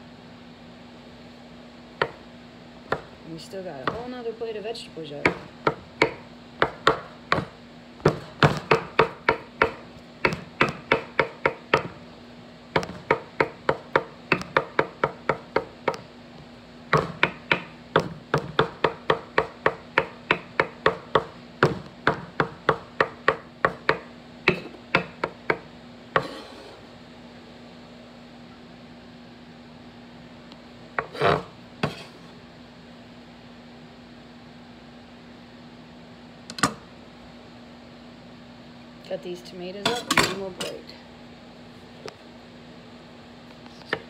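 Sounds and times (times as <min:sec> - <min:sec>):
faint steady hum: 0:00.0 - 0:44.0
knife chopping on wooden board: 0:02.0 - 0:02.2, 0:02.9 - 0:03.1, 0:03.8 - 0:04.2, 0:05.2 - 0:12.0, 0:12.7 - 0:16.1, 0:16.9 - 0:25.6, 0:26.2 - 0:26.8, 0:31.0 - 0:32.3.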